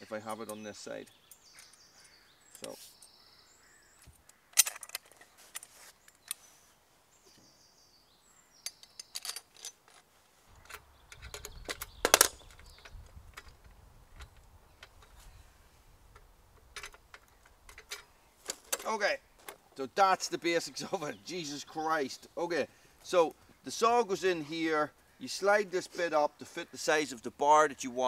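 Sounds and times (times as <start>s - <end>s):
metal frame parts clicking: 4.5s - 6.4s, 8.6s - 15.2s, 16.1s - 19.6s.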